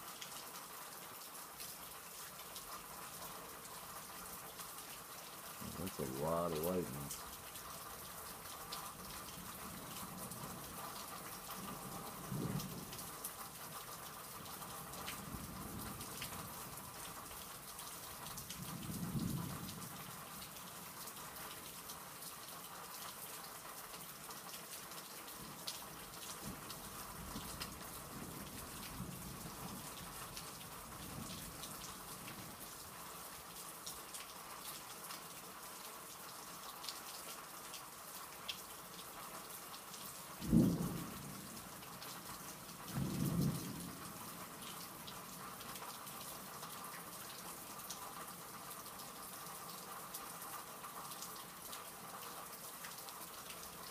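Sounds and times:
steady rain falling: 0.0 - 53.9
thunder rumbling: 40.4 - 41.4.

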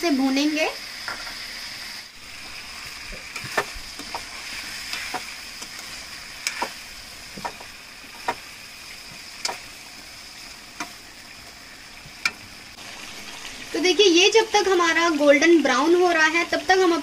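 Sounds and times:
chicken sizzling in a pan: 0.0 - 17.0
spoon scraping a pan: 2.4 - 10.0.

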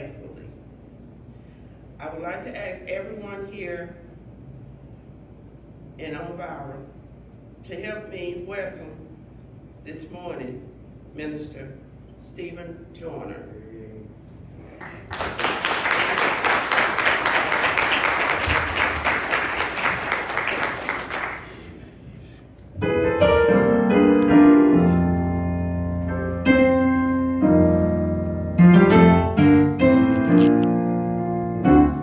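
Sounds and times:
congregation applauding: 14.8 - 22.0
electric keyboard chords: 22.7 - 32.0.

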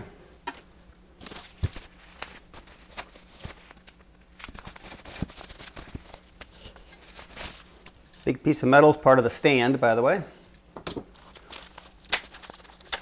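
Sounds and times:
plastic bag crinkling: 1.2 - 8.2, 11.1 - 13.0.

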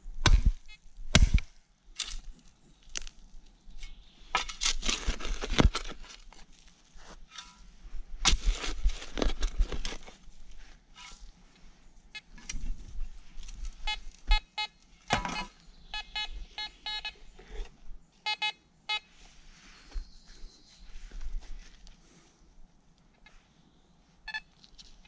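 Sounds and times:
scraping and rustling: 3.8 - 11.6
metal detector short beeps: 13.8 - 14.8, 15.4 - 17.2, 18.3 - 19.1, 24.3 - 24.5.

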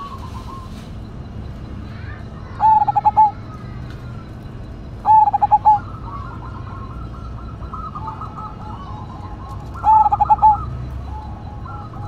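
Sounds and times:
dove cooing song: 0.0 - 1.3, 2.4 - 3.6, 5.0 - 12.0.

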